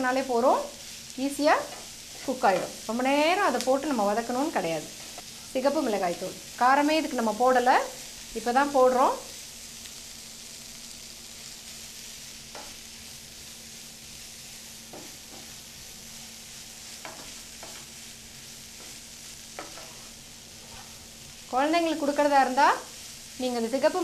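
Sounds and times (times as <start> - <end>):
food sizzling in a frying pan: 0.0 - 24.0
wooden spatula scraping a pan: 14.2 - 21.2.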